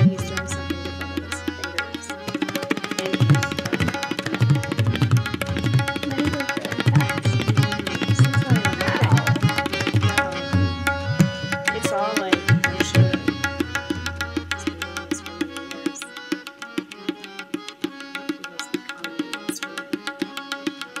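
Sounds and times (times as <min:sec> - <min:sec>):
held accompanying tone: 0:00.0 - 0:20.4
tabla treble drum strokes: 0:00.0 - 0:21.0
tabla bass drum strokes: 0:03.0 - 0:15.4.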